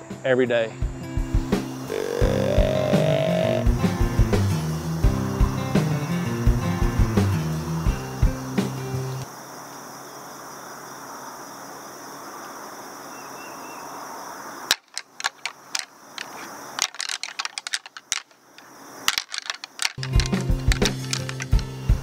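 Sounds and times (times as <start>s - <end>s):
music: 0.0s - 9.2s, 20.0s - 22.0s
outdoor hiss: 0.0s - 22.0s
rattling antlers clashing: 14.7s - 21.6s.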